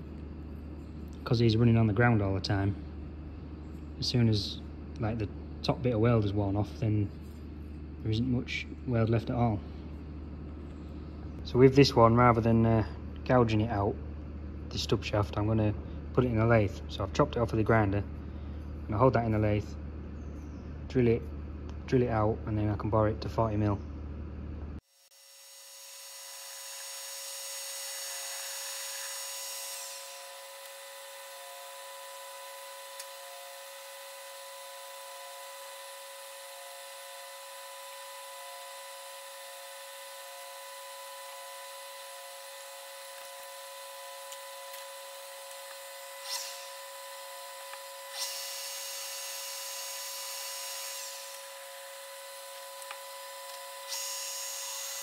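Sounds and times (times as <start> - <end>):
drill cutting hiss: 25.0 - 55.0
metal lathe machine whine: 25.5 - 55.0.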